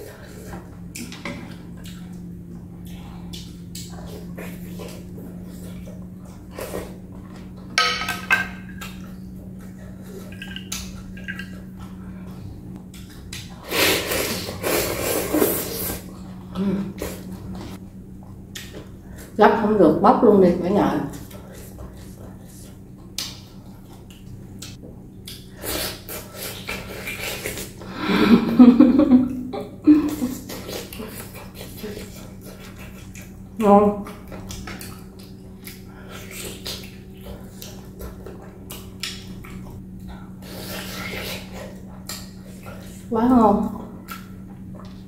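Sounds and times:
mouth chewing with wet smacks: 0.0 - 7.7, 8.7 - 13.6, 21.1 - 27.9, 30.0 - 43.1, 43.7 - 45.0
steady low hum: 0.0 - 45.0
utensils clinking on glass bowl: 7.8 - 8.8
slurping broth: 13.6 - 16.1
woman humming mmm: 13.6 - 17.6.

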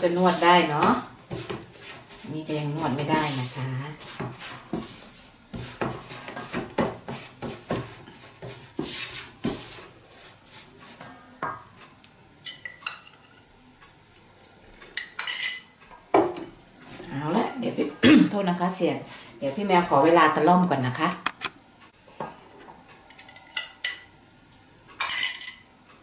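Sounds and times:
spatula scraping metal bowl: 0.0 - 11.2.

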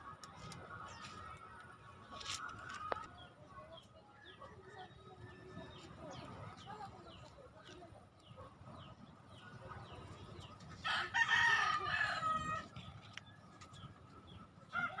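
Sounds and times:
rooster crowing: 10.9 - 12.6.

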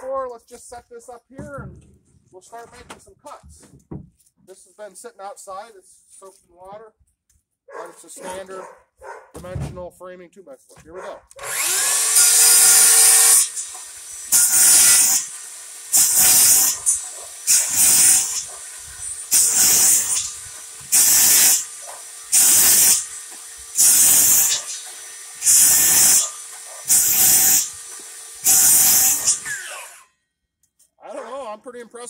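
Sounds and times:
circular saw cutting wood: 11.4 - 30.1
saw blade whine: 11.4 - 30.1.

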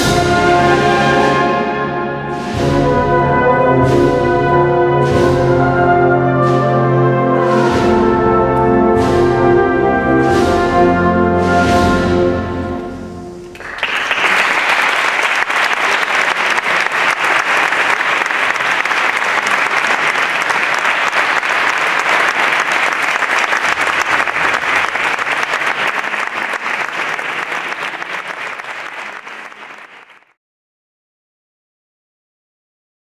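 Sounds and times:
brass band march: 0.0 - 13.5
audience applauding: 13.5 - 30.4.

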